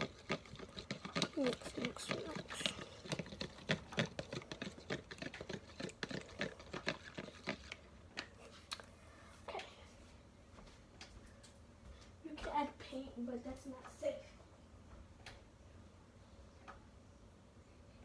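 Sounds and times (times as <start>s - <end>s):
plastic spoon scraping paste in bowl: 0.0s - 7.8s.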